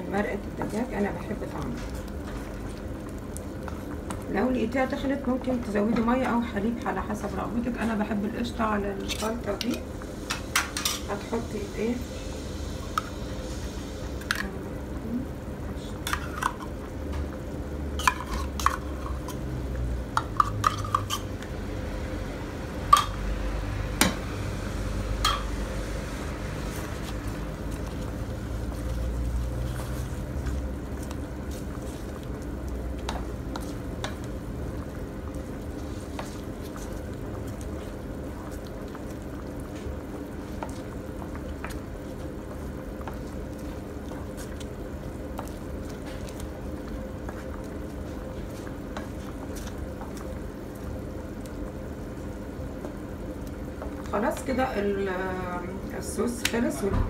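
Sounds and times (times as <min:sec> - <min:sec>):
wooden spoon stirring sauce: 0:18.0 - 0:21.2, 0:26.2 - 0:55.1.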